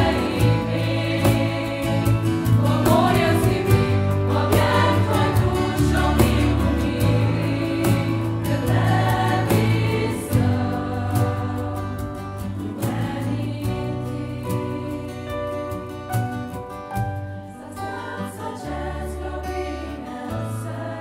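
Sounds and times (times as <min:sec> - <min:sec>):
cajon: 0:00.0 - 0:14.9
girls' choir singing: 0:00.0 - 0:15.3, 0:17.6 - 0:21.0
bass guitar: 0:00.0 - 0:17.6
acoustic guitars: 0:00.0 - 0:21.0.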